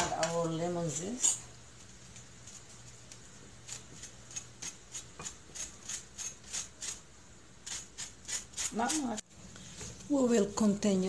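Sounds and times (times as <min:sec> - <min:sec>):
lemon being grated: 0:02.1 - 0:09.2.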